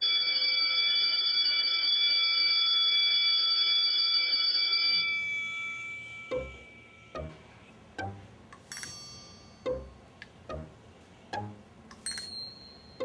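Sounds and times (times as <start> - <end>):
electric school bell ringing: 0.0 - 7.3, 8.7 - 9.7.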